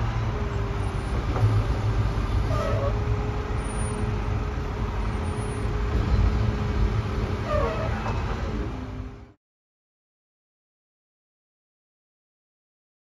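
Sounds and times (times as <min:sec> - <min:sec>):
diesel engine rumbling: 0:00.0 - 0:09.4
short squeak: 0:02.3 - 0:03.0, 0:03.6 - 0:04.1, 0:07.4 - 0:08.4.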